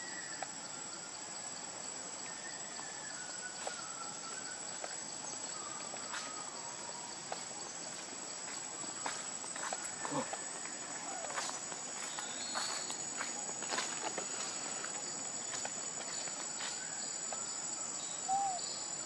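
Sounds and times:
high-pitched insect drone: 0.0s - 19.0s
faint whistled notes: 2.2s - 4.9s.

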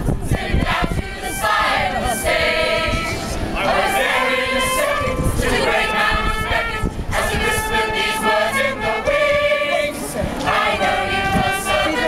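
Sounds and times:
mixed choir singing: 0.0s - 12.0s.

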